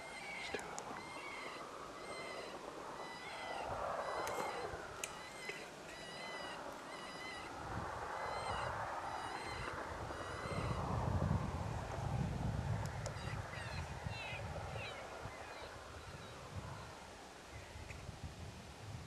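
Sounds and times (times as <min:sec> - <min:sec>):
high-pitched animal cries: 0:00.0 - 0:10.8
low wind rumble: 0:00.0 - 0:19.0.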